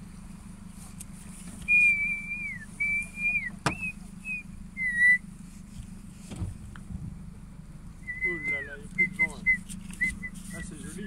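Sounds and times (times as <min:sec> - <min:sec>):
high whistled notes: 0:01.7 - 0:05.2, 0:08.0 - 0:10.7.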